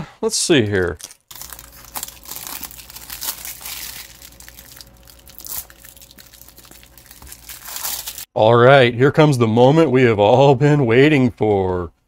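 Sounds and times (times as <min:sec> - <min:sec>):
plastic wrapping crinkling: 0:00.8 - 0:08.3.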